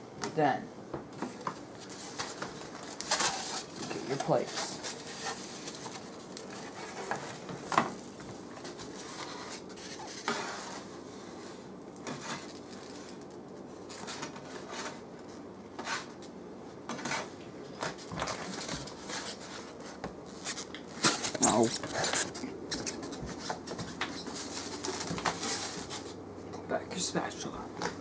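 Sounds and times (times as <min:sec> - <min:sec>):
spatula scraping on griddle: 0:09.0 - 0:12.5.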